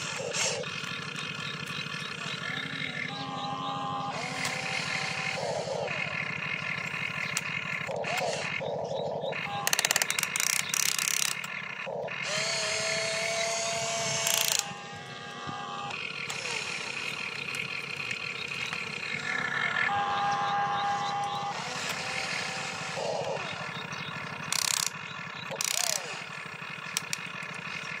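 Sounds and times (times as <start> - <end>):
small electric motors whirring: 0.0 - 26.3
rapid gear clicks: 4.2 - 19.2, 21.6 - 28.0.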